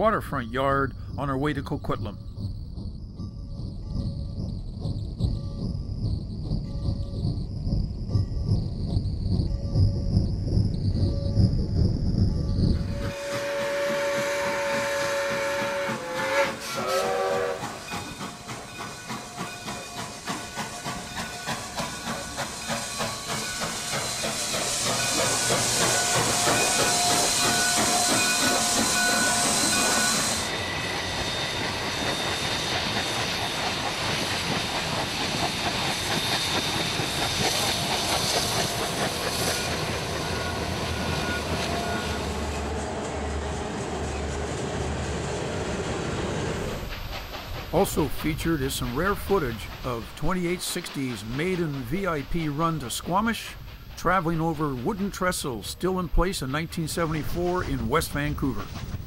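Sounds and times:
freight train rumbling past: 0:00.0 - 0:59.0
steam locomotive exhaust beats: 0:00.0 - 0:59.0
steam hissing: 0:12.7 - 0:59.0
steam whistle: 0:12.8 - 0:17.9, 0:23.9 - 0:33.0, 0:39.4 - 0:43.6.

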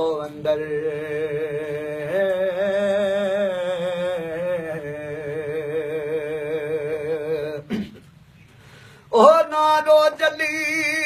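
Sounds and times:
man singing unaccompanied: 0:00.0 - 0:08.0, 0:09.1 - 0:11.0.

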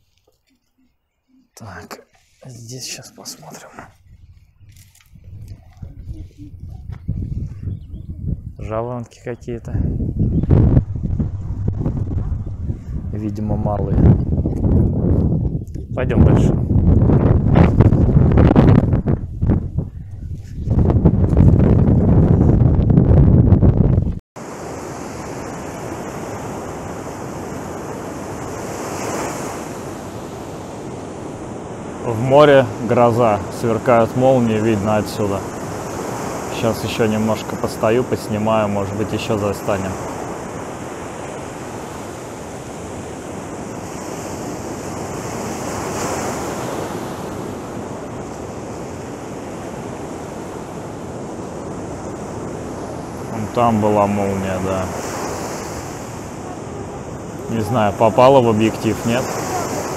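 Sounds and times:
wind buffeting microphone: 0:03.5 - 0:24.2, 0:37.4 - 0:59.9
waves breaking on shore: 0:24.4 - 0:59.9.

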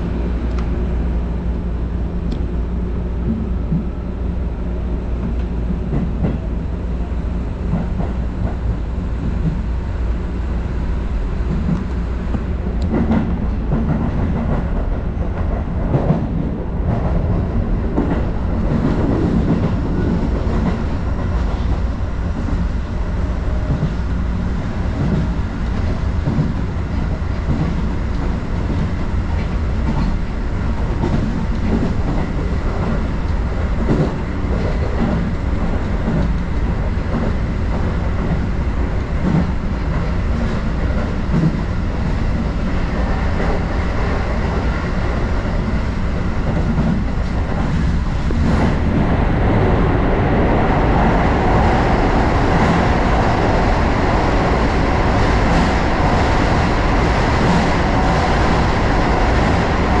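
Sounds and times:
train wheels rumbling on rail: 0:00.0 - 1:00.0.

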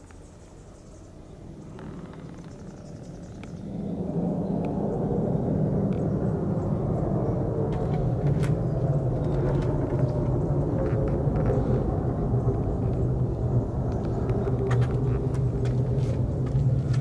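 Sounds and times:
low rumble: 0:03.0 - 0:17.0
deep hum: 0:03.9 - 0:17.0.

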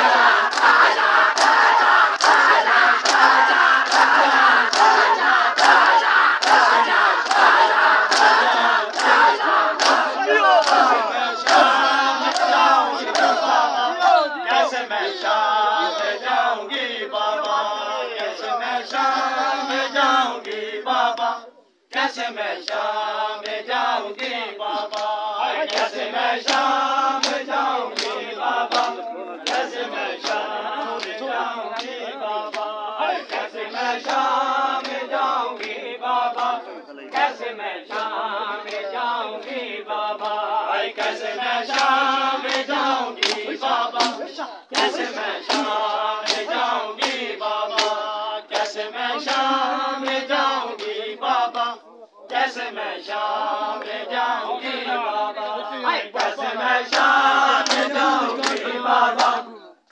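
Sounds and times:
men chanting a lament: 0:00.0 - 0:59.9
hands slapping on chests: 0:00.5 - 0:13.6, 0:21.9 - 0:23.6, 0:24.8 - 0:35.8, 0:41.0 - 0:49.5, 0:56.2 - 0:59.4.

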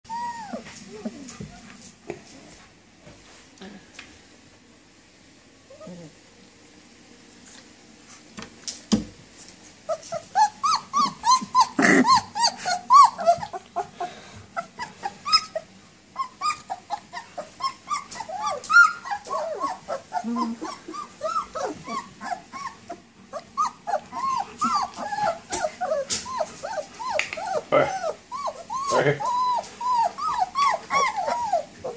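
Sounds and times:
puppies whining and yelping: 0:00.1 - 0:01.8, 0:05.7 - 0:06.2, 0:09.8 - 0:31.9.

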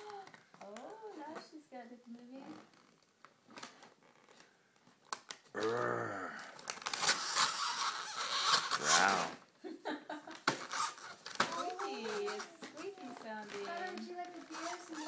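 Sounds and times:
faint paper rustles: 0:00.0 - 0:05.5, 0:10.1 - 0:15.0
person's drawn-out voice: 0:05.6 - 0:06.4
wrapping paper crinkling and tearing: 0:06.5 - 0:09.3, 0:10.4 - 0:15.0.

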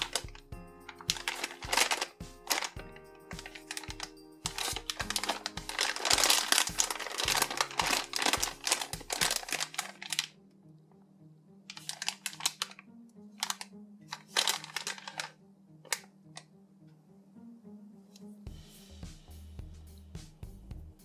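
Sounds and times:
plastic bag crinkling: 0:00.0 - 0:10.4, 0:11.7 - 0:16.1.

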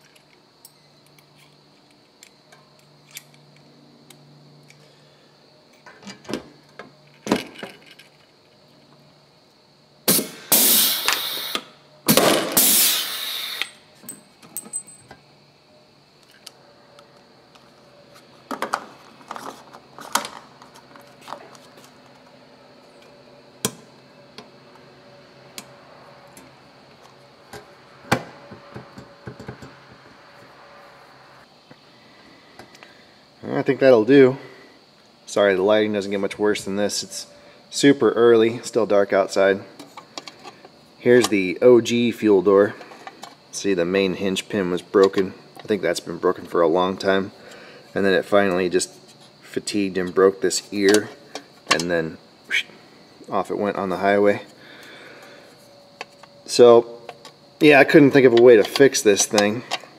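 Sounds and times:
harsh power tool bursts: 0:10.1 - 0:13.8
clicks and rattles of metal parts: 0:58.2 - 0:59.9.

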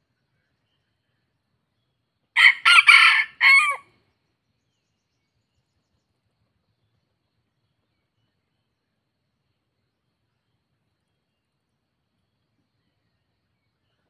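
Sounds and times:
rooster crowing: 0:02.4 - 0:03.9.

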